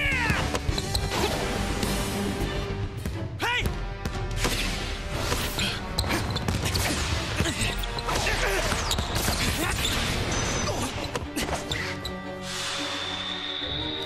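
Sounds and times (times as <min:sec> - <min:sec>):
anime background music: 0:00.0 - 0:14.0.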